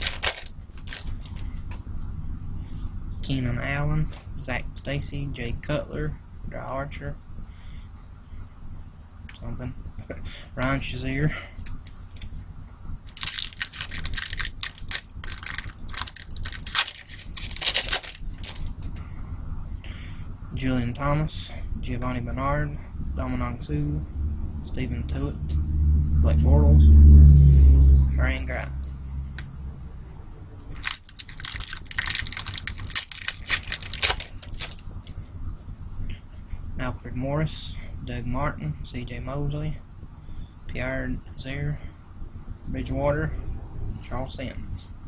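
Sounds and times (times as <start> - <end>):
wrapper tearing and crinkling: 0.0 - 1.5, 13.1 - 18.8, 30.7 - 34.9.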